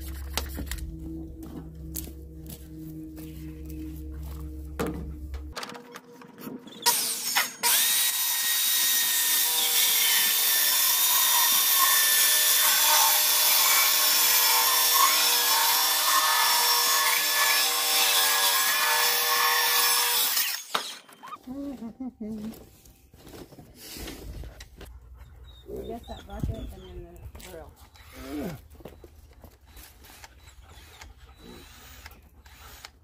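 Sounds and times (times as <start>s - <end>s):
electric power tool on wood: 6.6s - 21.0s, 29.7s - 33.0s.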